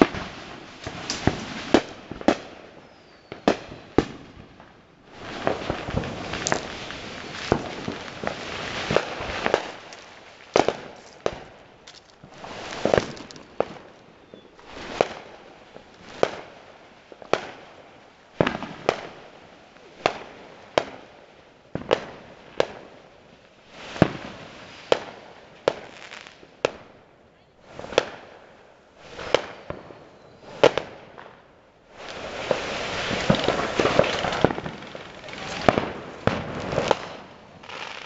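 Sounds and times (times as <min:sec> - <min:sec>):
firework hiss: 0:00.0 - 0:02.6, 0:05.1 - 0:16.6, 0:29.0 - 0:29.7, 0:31.9 - 0:38.0
fireworks banging: 0:00.0 - 0:17.7, 0:29.0 - 0:38.0.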